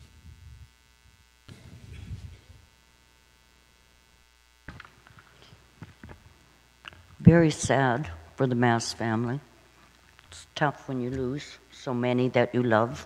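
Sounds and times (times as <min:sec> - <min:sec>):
electrical hum: 0:00.0 - 0:13.0
soft rustle: 0:01.5 - 0:02.8.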